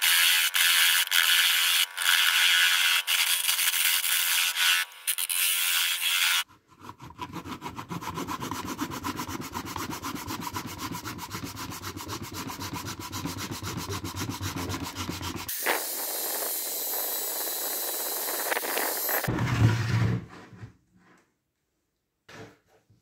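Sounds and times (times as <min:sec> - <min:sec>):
steel scraper rasping on wood: 0:00.0 - 0:19.3
power sander hissing and whining: 0:13.8 - 0:19.3.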